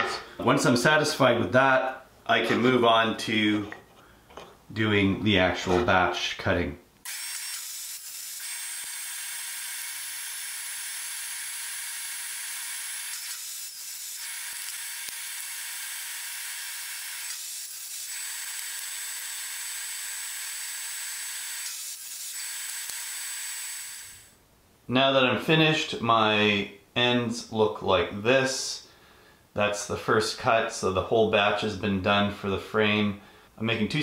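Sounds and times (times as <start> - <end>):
table saw cutting: 7.1 - 24.3.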